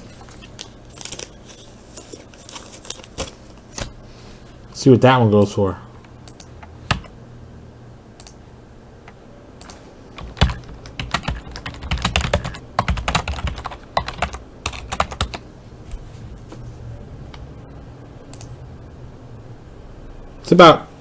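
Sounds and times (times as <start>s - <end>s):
computer keyboard typing: 6.2s - 7.1s, 9.6s - 15.4s.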